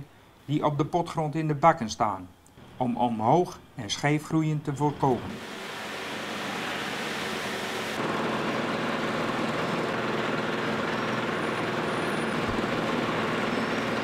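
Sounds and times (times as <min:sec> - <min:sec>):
conveyor machinery rattling: 0:08.0 - 0:14.0.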